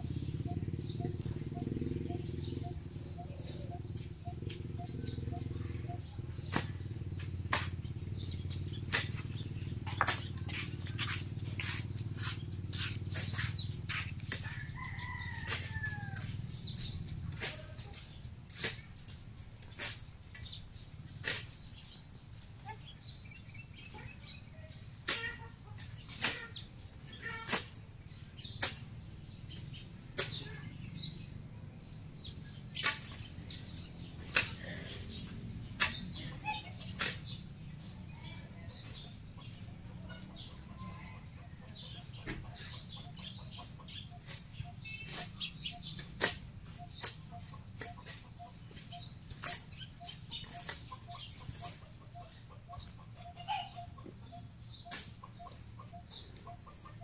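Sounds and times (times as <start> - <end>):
blade swishing through grass: 6.4 - 21.9, 25.0 - 29.0, 30.1 - 30.6, 32.5 - 37.9, 43.2 - 52.4, 54.9 - 55.4.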